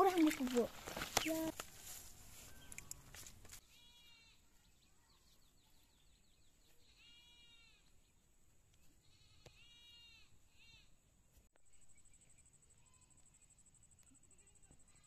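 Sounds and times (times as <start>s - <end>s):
high-pitched animal cries: 6.9s - 7.8s, 9.1s - 10.9s.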